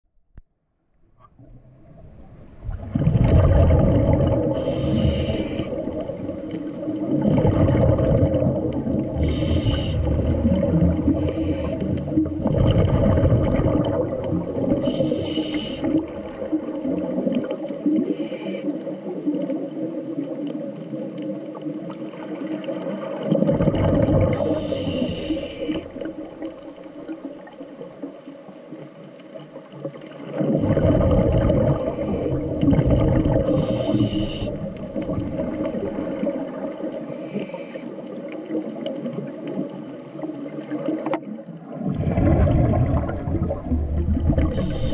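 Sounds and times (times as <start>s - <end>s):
exhaled bubbles gurgling: 1.3s - 44.9s
regulator hissing inhales: 4.6s - 6.0s, 9.2s - 10.3s, 11.1s - 12.2s, 14.8s - 16.0s, 18.0s - 18.8s, 24.4s - 26.1s, 33.4s - 34.7s, 37.1s - 38.0s, 44.5s - 44.9s.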